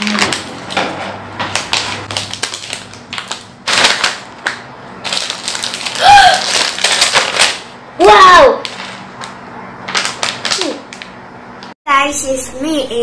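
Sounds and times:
plastic bag crinkling: 0.0s - 0.8s, 1.5s - 7.7s, 8.6s - 11.1s.

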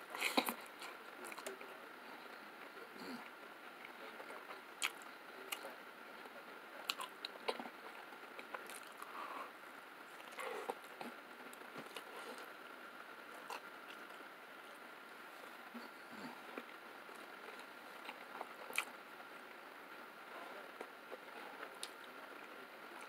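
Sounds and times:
person chewing pizza: 3.1s - 5.7s, 6.8s - 7.7s, 8.4s - 9.4s, 10.1s - 12.5s, 13.4s - 14.2s, 15.7s - 18.9s.

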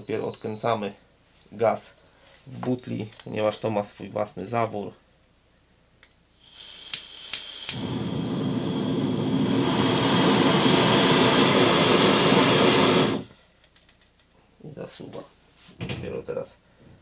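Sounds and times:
gas burner rushing: 6.4s - 13.3s
gas hissing: 6.4s - 13.3s
stove ignition clicks: 6.8s - 10.1s.

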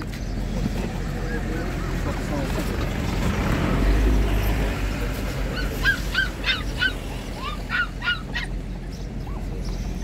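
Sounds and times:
puppy squealing: 5.5s - 10.0s.

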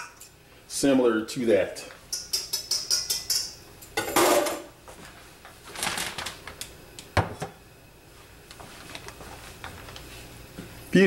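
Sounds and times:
plastic bag rustling: 5.0s - 6.6s, 8.6s - 10.3s.

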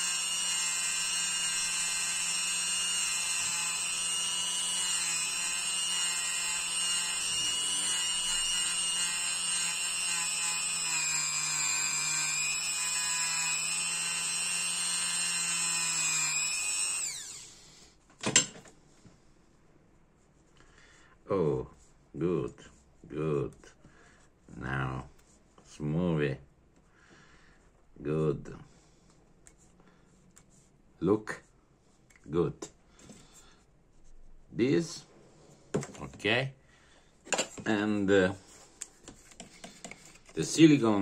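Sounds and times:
rotary tool high-pitched whine: 0.0s - 17.8s.

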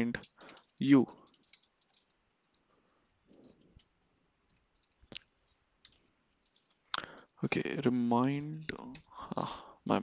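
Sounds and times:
computer keyboard keystrokes: 0.2s - 2.6s.

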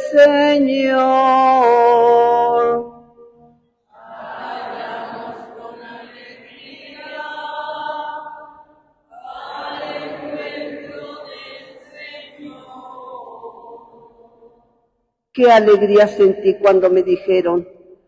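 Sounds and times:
congregation singing in unison: 3.9s - 14.9s.

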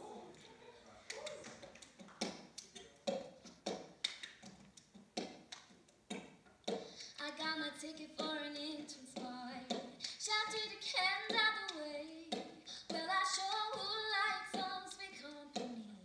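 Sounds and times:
woman singing: 7.0s - 16.0s.

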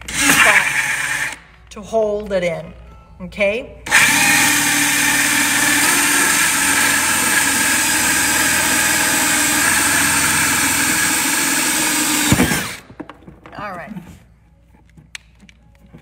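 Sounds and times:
cordless drill cutting plastic: 0.0s - 1.4s, 3.9s - 12.8s.

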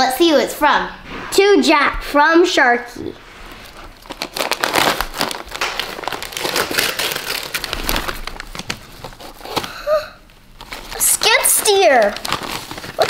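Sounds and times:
wrapping paper crinkling and ripping: 3.9s - 13.0s.

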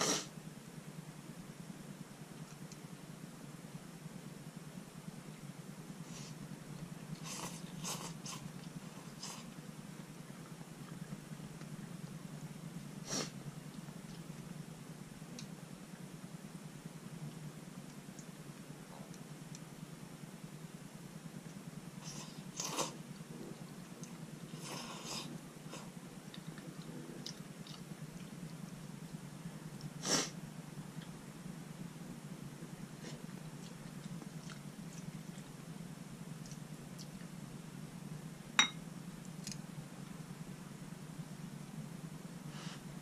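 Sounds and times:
chewing: 7.1s - 9.6s, 22.0s - 28.6s, 33.0s - 35.6s, 36.4s - 37.3s.

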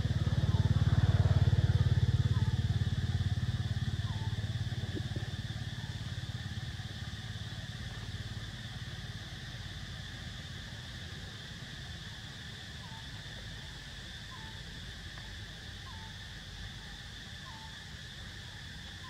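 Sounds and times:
vehicle engine droning: 0.0s - 11.6s.

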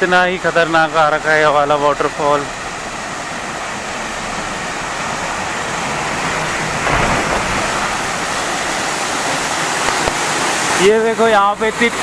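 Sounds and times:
waterfall rushing: 2.6s - 11.1s.

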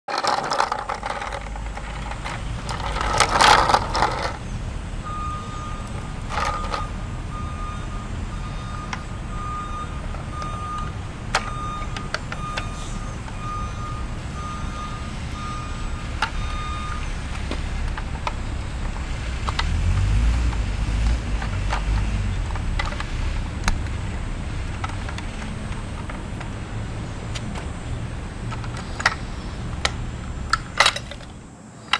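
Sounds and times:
diesel engine rumbling: 0.1s - 31.9s
back-up alarm beeping: 3.9s - 17.2s.

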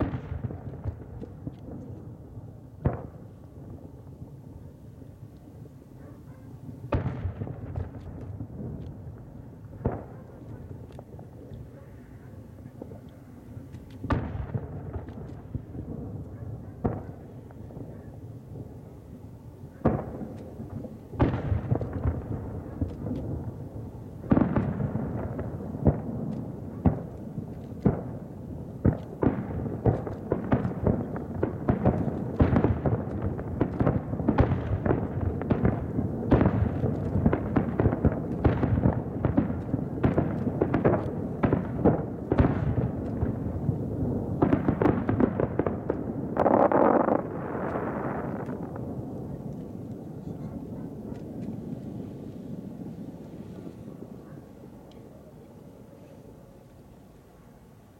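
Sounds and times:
firework shells bursting: 44.4s - 50.1s.

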